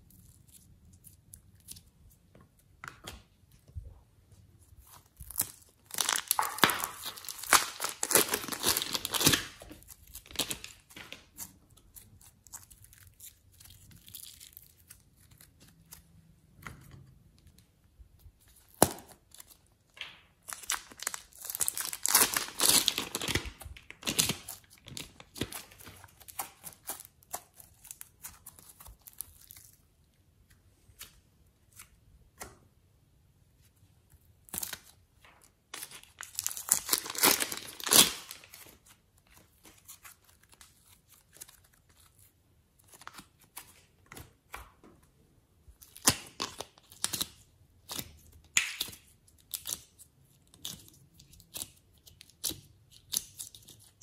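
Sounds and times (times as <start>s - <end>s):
slime crackling and popping: 4.8s - 16.1s, 18.5s - 29.8s, 35.8s - 38.6s, 45.8s - 54.0s.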